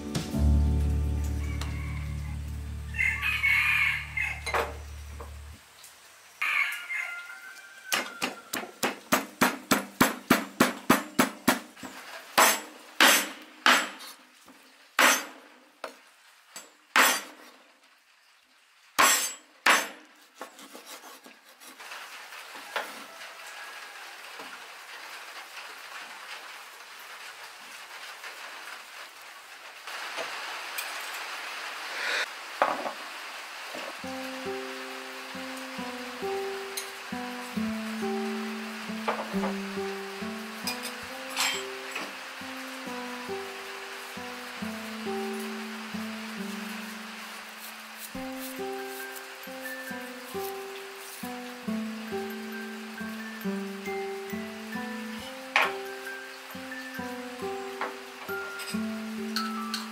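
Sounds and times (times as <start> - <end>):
faint steady hiss: 0.0 - 8.2, 21.8 - 59.9
cleaver chopping on wooden board: 8.2 - 11.7.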